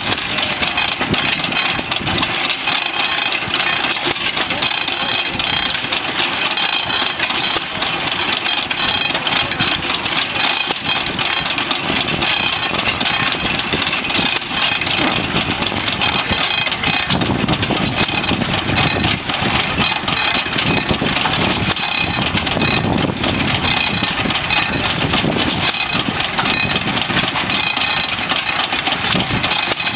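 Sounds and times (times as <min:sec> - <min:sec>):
gas engine clattering: 0:00.0 - 0:29.9.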